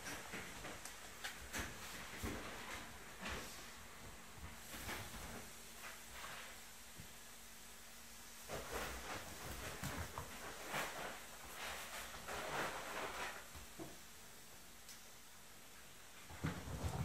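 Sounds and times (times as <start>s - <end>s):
puppies scuffling on wooden floor: 8.5s - 14.0s, 16.3s - 17.0s.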